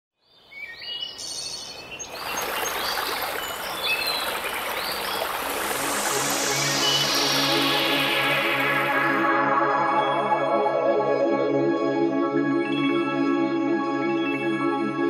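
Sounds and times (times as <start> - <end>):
birds chirping: 0.6 - 9.0
stream rushing: 2.0 - 9.3
music: 5.8 - 15.0.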